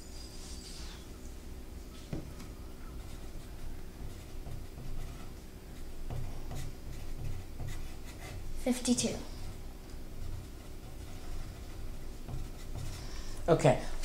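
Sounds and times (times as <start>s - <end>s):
faint room hum: 0.0s - 14.0s
pencil scratching on paper: 2.9s - 13.5s.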